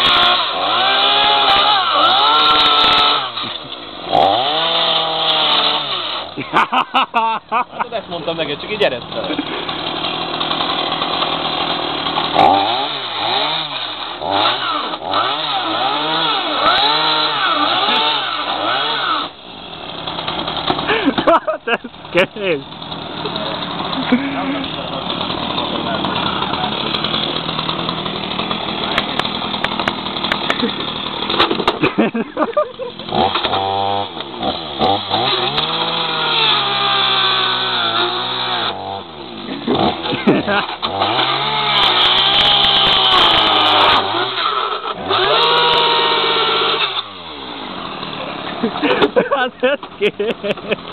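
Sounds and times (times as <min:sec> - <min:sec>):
chainsaw cutting plastic: 0:00.0 - 0:50.9
sharp crack: 0:24.8 - 0:32.0.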